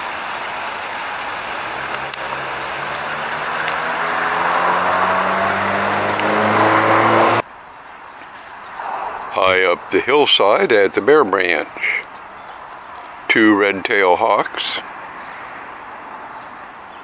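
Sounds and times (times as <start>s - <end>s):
waterfall splashing into pool: 0.0s - 7.2s
vehicle engine accelerating: 0.1s - 7.4s.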